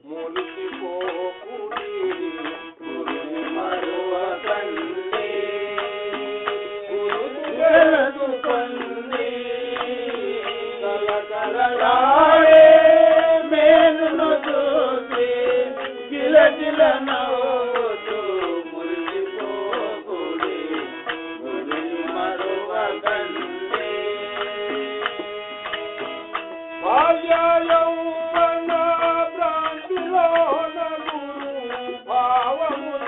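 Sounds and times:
tabla playing a rhythm: 0.0s - 33.0s.

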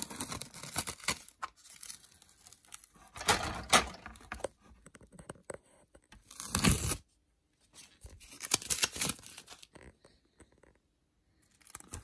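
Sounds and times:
masking tape ripping: 6.2s - 7.0s
tape crackling: 7.8s - 10.7s, 11.3s - 12.0s.

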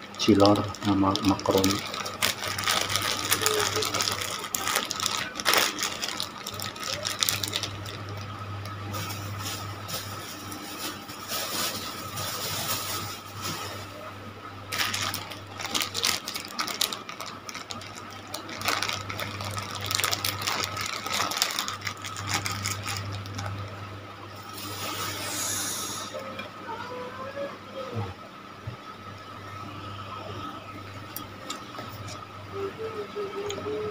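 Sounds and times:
plastic bags crinkling: 0.0s - 14.0s, 14.7s - 25.3s
steady low hum: 0.0s - 33.9s.

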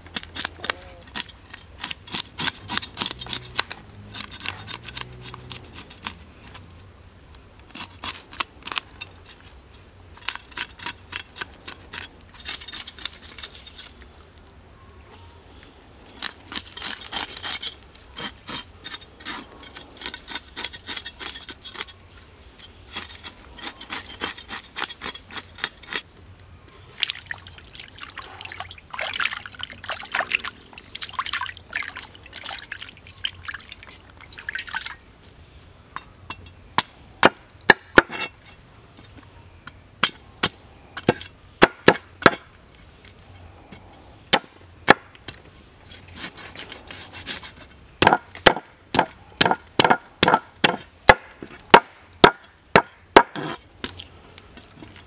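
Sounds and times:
cleaver scraping fish scales: 10.2s - 14.0s, 16.2s - 22.0s, 22.6s - 26.0s, 45.8s - 47.8s.

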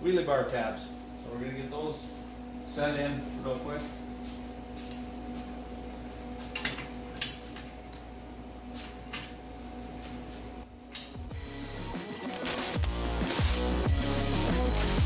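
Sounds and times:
steady electrical hum: 0.0s - 15.0s
music: 11.0s - 15.0s.

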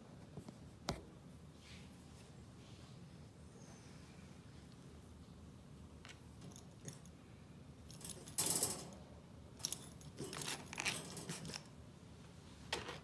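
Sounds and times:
metallic jingling and clinking: 7.9s - 9.0s, 9.6s - 11.7s.

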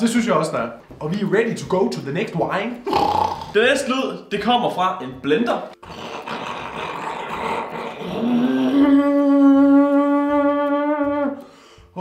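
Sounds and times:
man imitating a blender: 5.8s - 11.4s.

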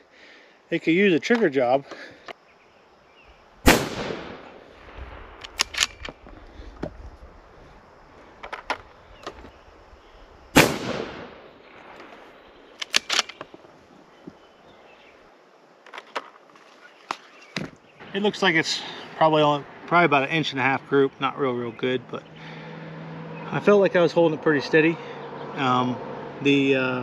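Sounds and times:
rifle shot echoing: 3.6s - 6.2s, 10.5s - 13.4s
rifle bolt clicking: 5.4s - 6.2s, 12.8s - 13.5s.

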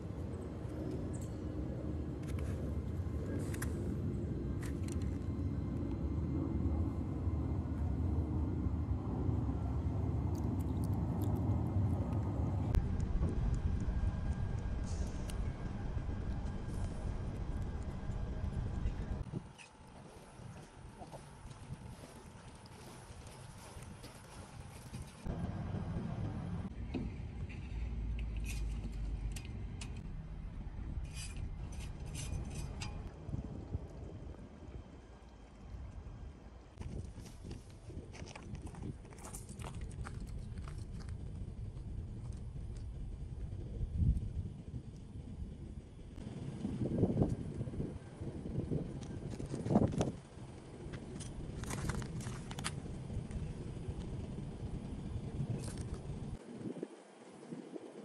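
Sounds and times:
wind buffeting microphone: 0.0s - 26.7s, 29.8s - 58.0s
low microphone rumble: 1.7s - 19.5s.

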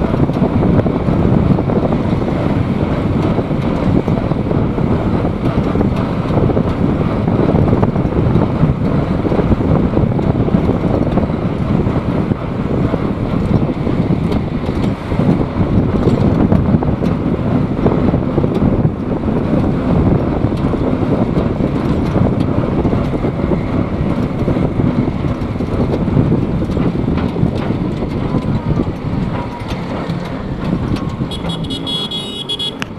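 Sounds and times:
vehicle engine and road noise: 0.0s - 32.9s
wind on microphone: 0.0s - 32.9s
car horn toot: 31.3s - 32.9s.

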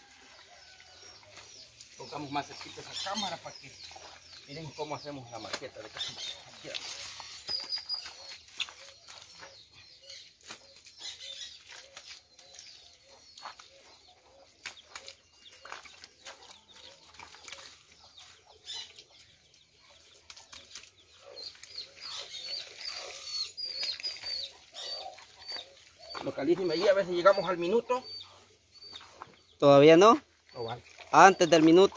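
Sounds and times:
small birds chirping: 0.3s - 31.9s
hands slapping wet mud: 14.6s - 19.1s, 20.2s - 24.6s.

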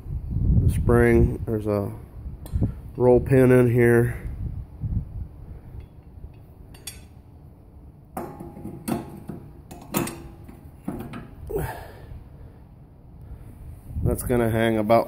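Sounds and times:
metal bracket and pin clanking: 5.8s - 7.2s, 8.1s - 11.5s.

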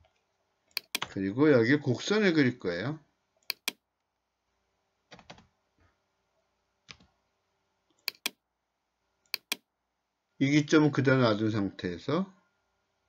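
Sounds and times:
computer mouse clicking: 0.7s - 1.1s, 3.4s - 3.8s, 8.0s - 8.4s, 9.3s - 9.6s.

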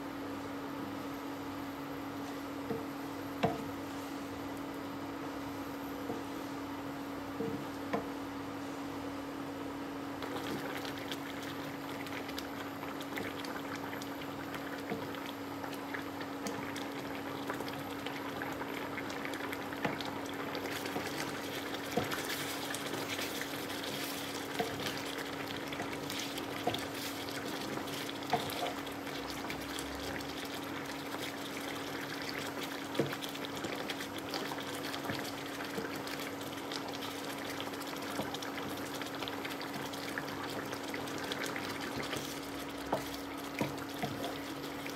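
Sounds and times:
sauce simmering and bubbling: 9.6s - 44.9s.

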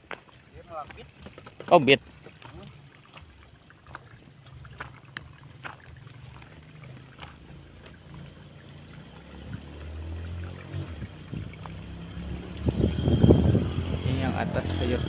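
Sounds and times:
water trickling onto soil: 0.0s - 13.0s
wind rumble on microphone: 10.7s - 15.0s.

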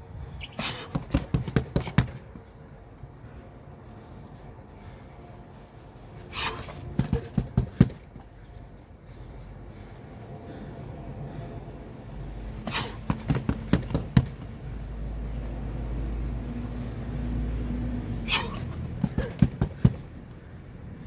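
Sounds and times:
punches thudding on heavy bag: 6.4s - 8.0s, 12.6s - 14.4s.

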